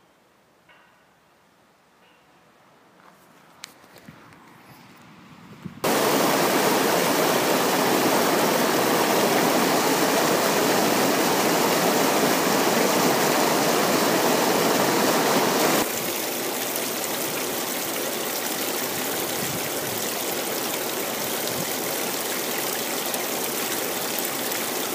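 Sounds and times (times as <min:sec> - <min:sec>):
water rushing over rapids: 0:05.8 - 0:24.9
small stream trickling: 0:15.8 - 0:24.9.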